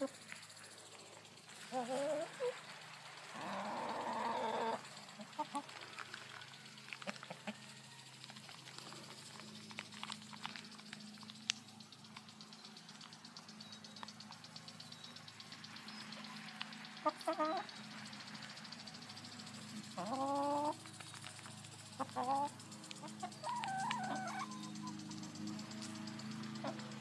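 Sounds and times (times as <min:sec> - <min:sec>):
steady low hum: 0:00.0 - 0:27.0
hens calling: 0:01.5 - 0:09.8, 0:15.1 - 0:25.4, 0:26.5 - 0:27.0.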